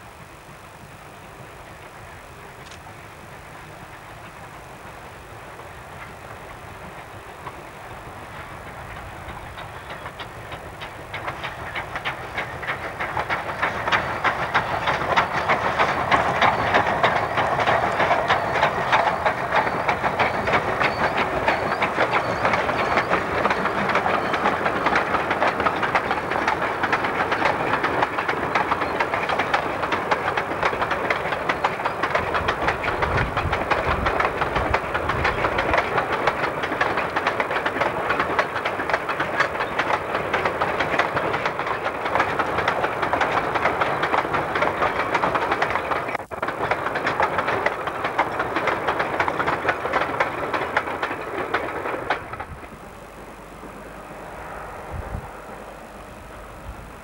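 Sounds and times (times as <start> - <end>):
train wheels clattering over rail joints: 1.3 - 54.6
deep rumble: 53.8 - 57.0.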